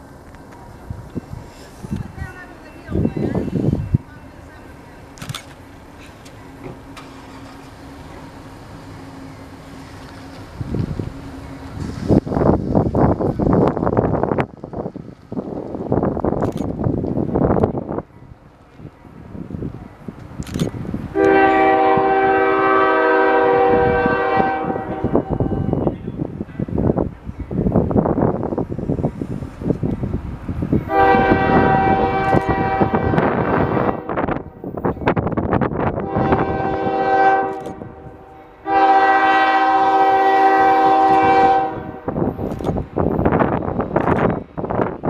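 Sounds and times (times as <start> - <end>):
wind noise on microphone: 0.7 - 4.2, 10.2 - 45.0
locomotive air horn blast: 21.1 - 25.9, 30.9 - 34.7, 36.0 - 42.3.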